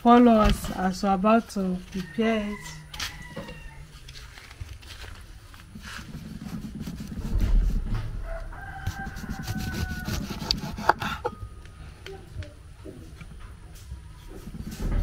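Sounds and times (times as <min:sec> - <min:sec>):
rooster crowing: 0:02.0 - 0:04.0, 0:08.1 - 0:11.2
rubbing and handling noises: 0:03.9 - 0:11.3.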